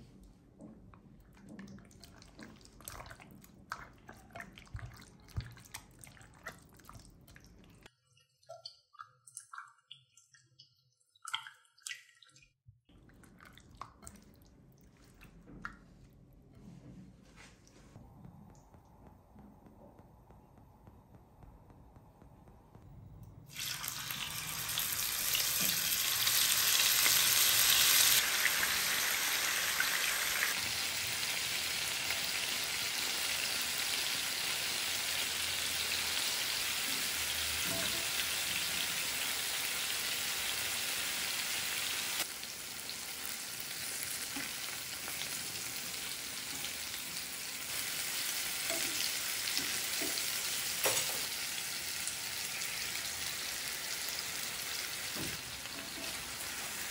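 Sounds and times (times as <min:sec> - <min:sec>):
chicken sizzling in oil: 0:23.5 - 0:56.9.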